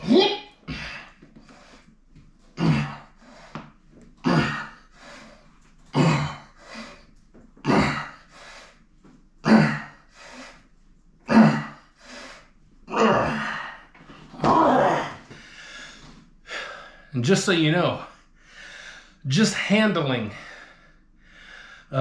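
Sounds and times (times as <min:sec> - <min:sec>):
man breathing hard: 0:00.7 - 0:02.0, 0:02.7 - 0:03.8, 0:04.4 - 0:05.6, 0:06.4 - 0:07.2, 0:08.0 - 0:08.9, 0:09.8 - 0:10.7, 0:11.5 - 0:12.6, 0:15.2 - 0:17.1, 0:18.2 - 0:19.2, 0:20.3 - 0:22.0.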